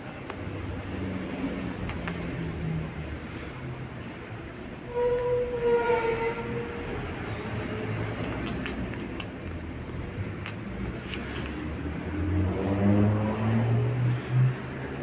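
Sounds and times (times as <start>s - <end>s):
train rumbling past: 2.4s - 8.1s
train horn: 4.8s - 7.0s.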